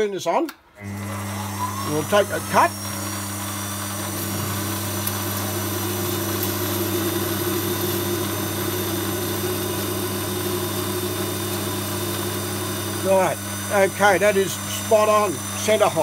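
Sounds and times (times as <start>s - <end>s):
metal lathe humming: 0.8s - 16.0s.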